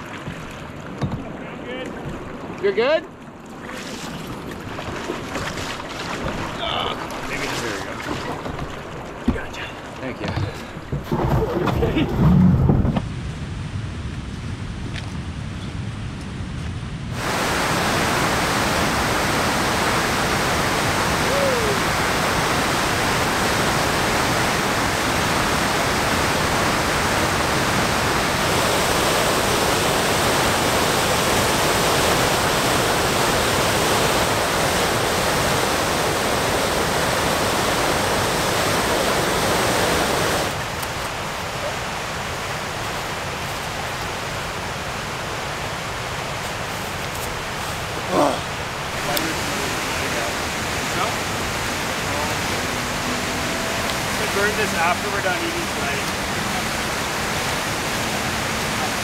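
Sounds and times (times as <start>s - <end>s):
waterfall roaring over rocks: 17.1s - 59.0s
steady hiss: 17.2s - 40.8s.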